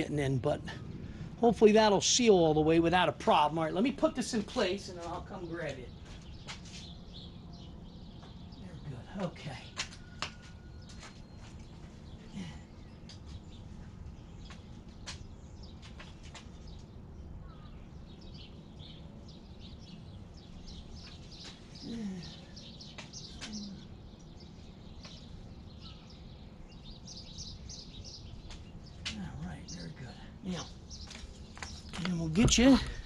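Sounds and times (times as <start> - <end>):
low background rumble: 0.0 - 9.7
small birds chirping: 0.0 - 33.0.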